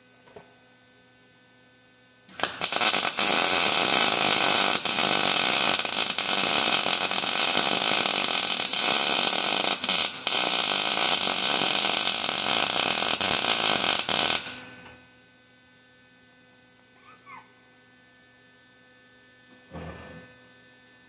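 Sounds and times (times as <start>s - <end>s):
welding arc crackling and hissing: 2.3s - 14.7s.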